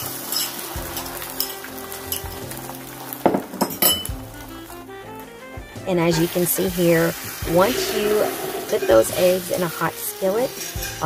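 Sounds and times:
eggs sizzling in a skillet: 0.0s - 11.0s
soft background music: 0.0s - 11.0s
spoon clinking on bowl and pan: 0.2s - 2.3s, 3.6s - 4.2s.

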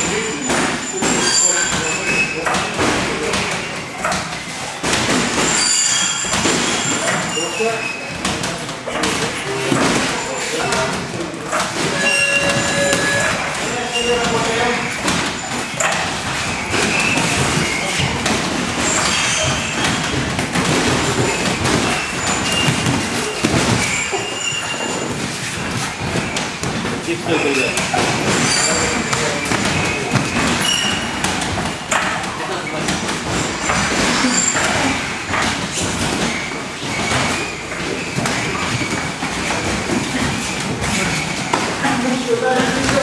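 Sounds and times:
busy training hall noise: 0.0s - 43.0s
steady background noise: 0.0s - 43.0s
bodies colliding: 8.2s - 41.8s
fighters grappling on mats: 14.4s - 41.8s.

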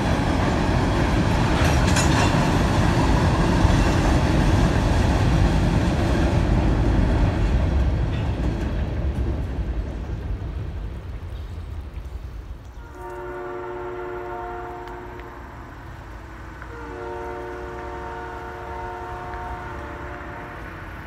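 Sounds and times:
distant locomotive air horn: 12.8s - 15.8s, 16.6s - 21.0s.

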